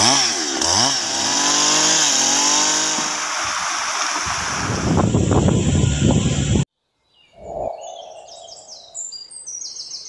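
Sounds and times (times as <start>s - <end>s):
chainsaw cutting log: 0.0s - 4.9s.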